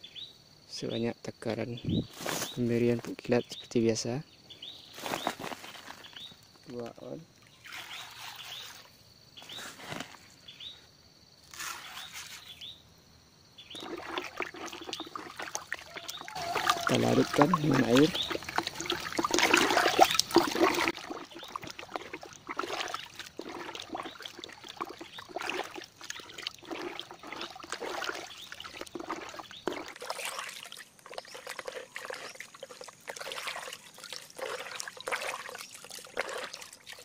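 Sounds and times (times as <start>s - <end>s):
water sloshing in a bucket: 4.9s - 10.2s, 13.6s - 37.0s.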